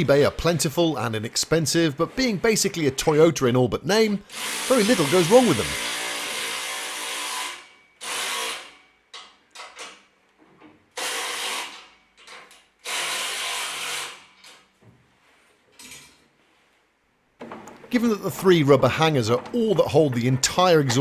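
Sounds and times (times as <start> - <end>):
power tool running nuts down: 4.3 - 8.8.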